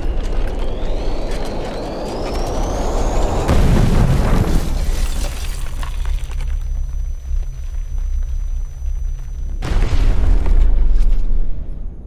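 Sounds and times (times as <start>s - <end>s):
thin whine rising in pitch: 0.0s - 4.8s
explosion boom: 3.4s - 6.1s, 9.6s - 12.0s.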